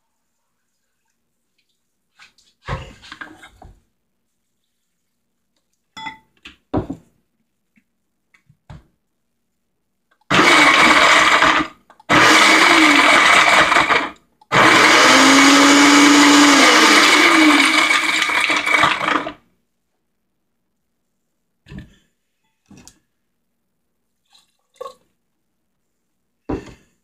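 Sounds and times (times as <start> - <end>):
blender grinding nuts: 10.3 - 19.4.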